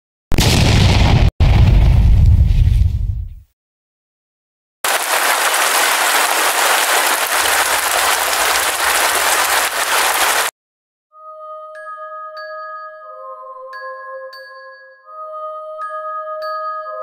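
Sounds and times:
deep boom: 0.3s - 3.4s
heavy rain on pavement: 4.9s - 10.5s.

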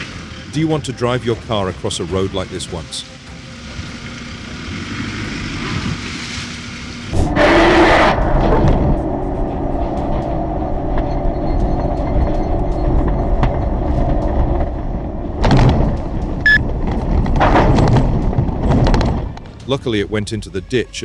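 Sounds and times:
vehicle engine rumble: 0.0s - 20.6s
road noise: 0.0s - 21.0s
rush of noise: 4.2s - 19.3s.

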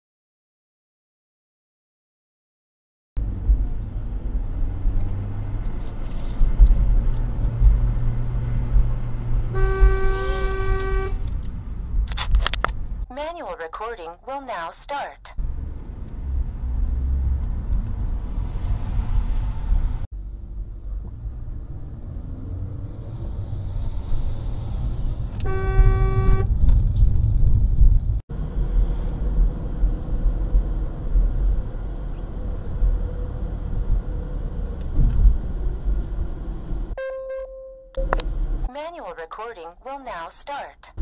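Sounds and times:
car road and engine rumble: 3.2s - 41.0s
car horn blast: 9.5s - 11.3s, 25.4s - 26.6s, 37.0s - 38.2s.

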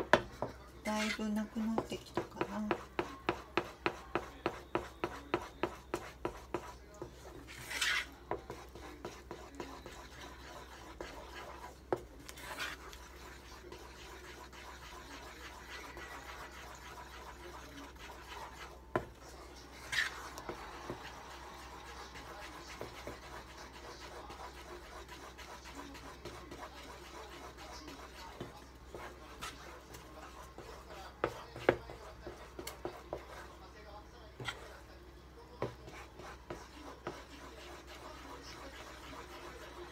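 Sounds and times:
spatula scraping a saucepan: 0.0s - 35.0s, 35.6s - 39.9s.

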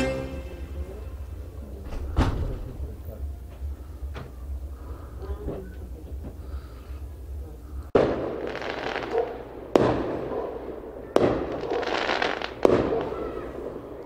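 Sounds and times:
fireworks bangs: 0.0s - 14.0s
fireworks crackle: 7.9s - 14.0s.

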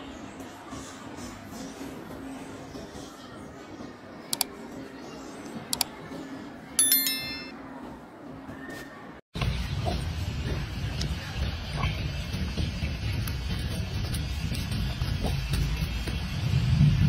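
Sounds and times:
bell-like notification chime: 6.8s - 7.6s.

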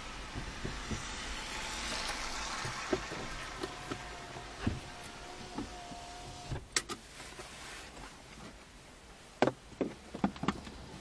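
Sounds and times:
raindrops tapping on a car: 0.0s - 5.8s.

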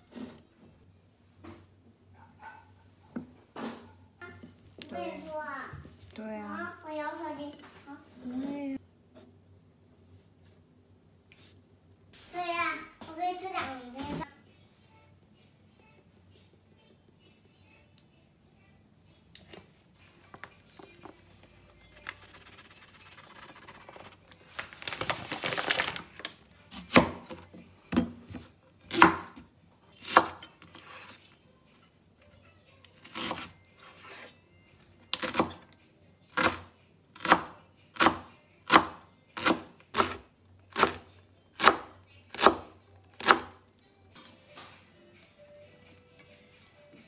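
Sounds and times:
knife chopping on cutting board: 28.9s - 29.4s.

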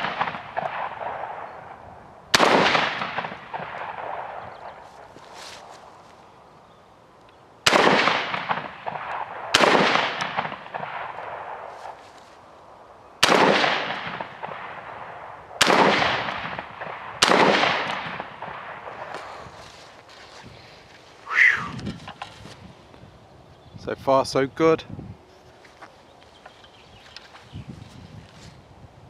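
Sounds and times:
shotgun shots with echo: 0.0s - 4.8s, 7.6s - 12.0s, 13.2s - 19.2s.

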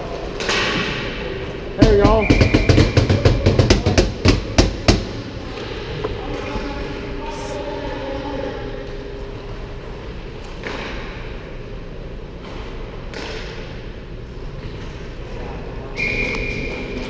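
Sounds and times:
steady hum: 0.0s - 17.0s
distant hockey play: 0.1s - 7.3s.

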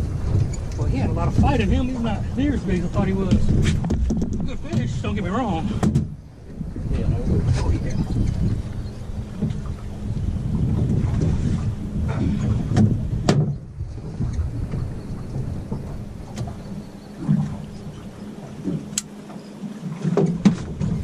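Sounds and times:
boat motor humming: 0.0s - 21.0s
wind buffeting microphone: 0.0s - 21.0s.

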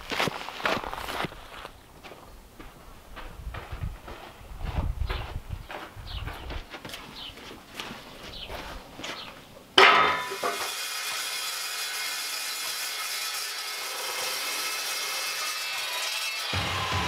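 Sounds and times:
chop saw whining: 9.8s - 17.0s.

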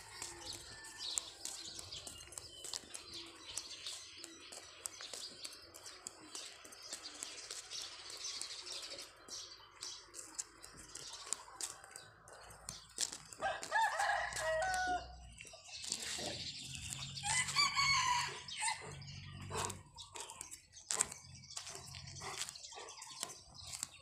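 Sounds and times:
rooster crowing: 13.4s - 15.2s.

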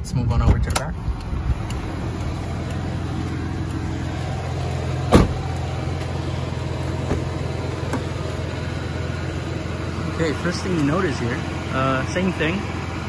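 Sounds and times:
car engine idling: 0.0s - 13.0s
car door shutting: 5.0s - 5.7s, 7.0s - 8.2s.

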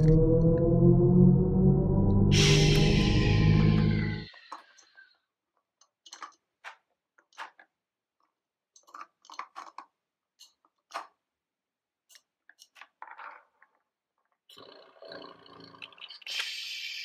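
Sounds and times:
plastic toy parts clicking: 5.8s - 11.3s.

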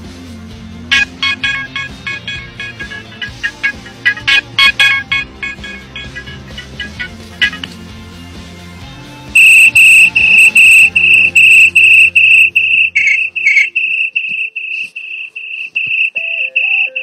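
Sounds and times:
quiet background music: 0.0s - 17.0s
high-pitched electronic beeping: 0.9s - 7.7s, 9.4s - 17.0s.

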